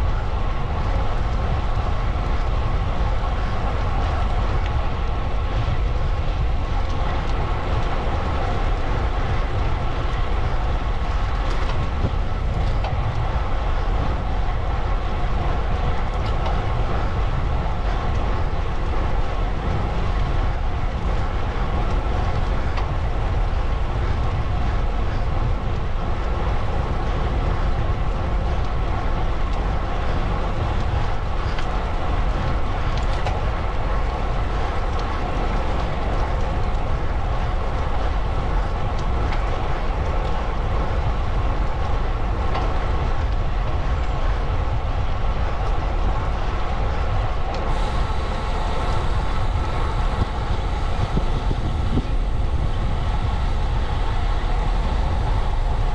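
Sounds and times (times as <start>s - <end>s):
road noise: 0.0s - 55.9s
wind on microphone: 0.0s - 55.9s.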